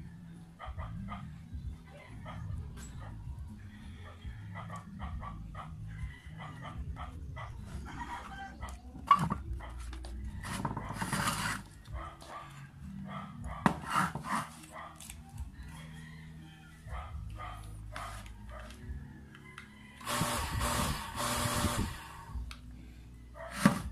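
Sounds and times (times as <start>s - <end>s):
dog barking and yipping: 0.6s - 3.2s, 4.5s - 15.4s, 16.9s - 18.8s, 23.4s - 23.9s.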